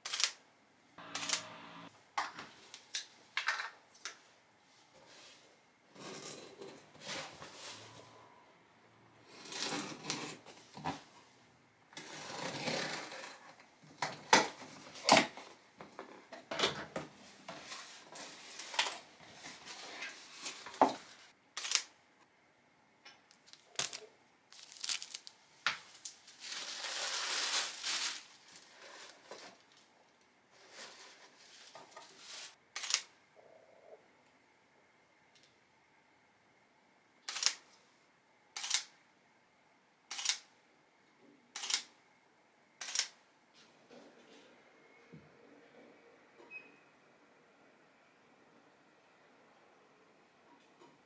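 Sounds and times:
scissors cutting packing tape: 1.1 - 1.5
paper rustling and crinkling: 23.4 - 29.9.

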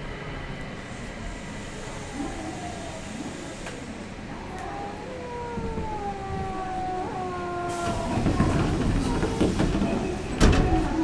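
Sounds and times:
train rumble: 0.0 - 11.0.

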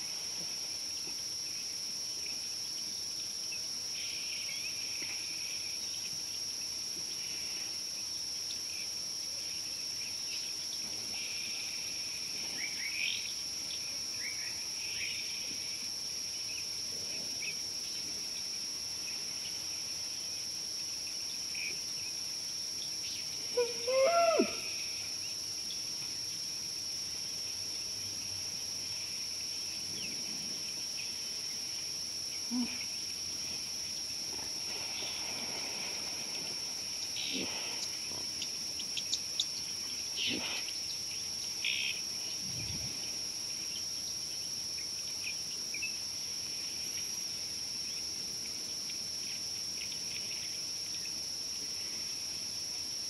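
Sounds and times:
insects droning: 0.0 - 53.0
loud animal call falling in pitch: 23.6 - 24.7.

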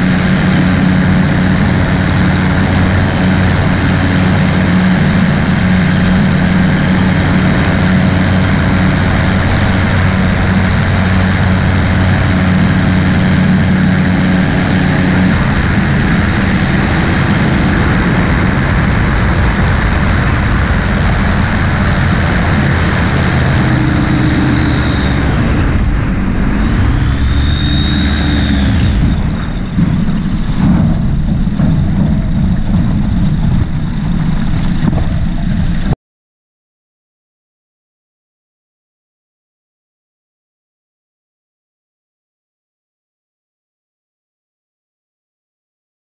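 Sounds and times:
aircraft engine and propeller: 0.0 - 36.0
wind on microphone: 0.0 - 36.0.

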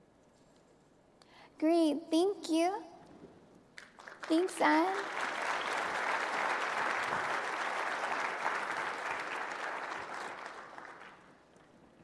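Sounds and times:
audience applauding: 3.8 - 11.7.

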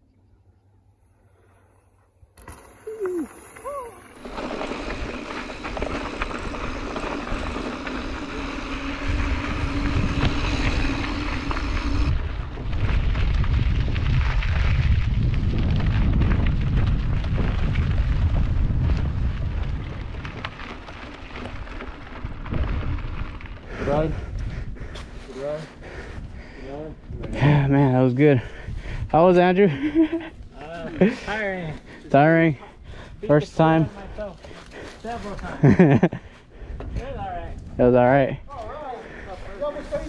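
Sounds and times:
wind buffeting microphone: 4.4 - 29.3, 36.2 - 40.0.

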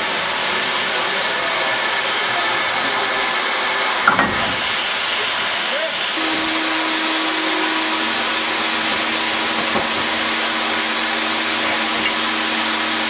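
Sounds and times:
steam locomotive hissing steam: 0.0 - 13.0.

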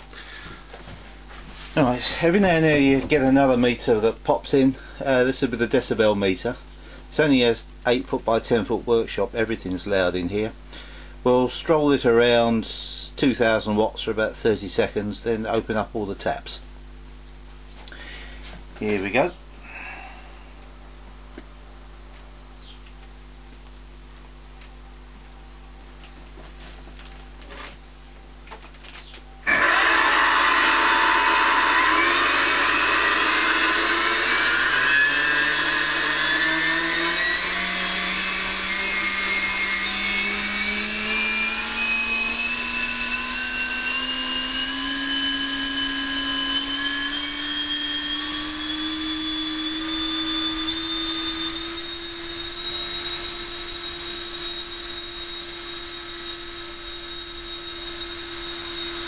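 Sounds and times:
electric ducted fan whine: 0.0 - 59.0.

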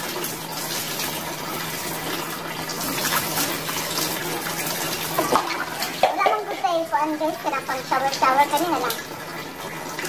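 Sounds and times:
water splashing on concrete floor: 7.8 - 9.3.

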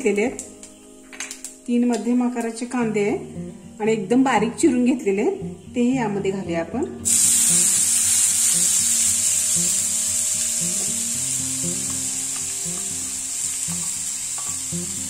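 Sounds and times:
faint background music: 0.0 - 15.0
onions sizzling in hot oil: 7.0 - 15.0.

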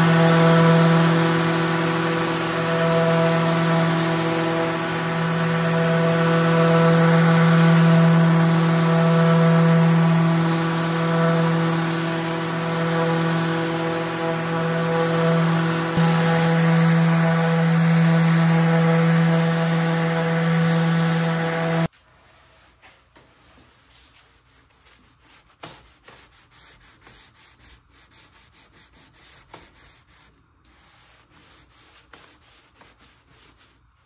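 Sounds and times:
orbital sander humming: 0.0 - 21.9
sandpaper rasping by hand: 23.6 - 34.0.

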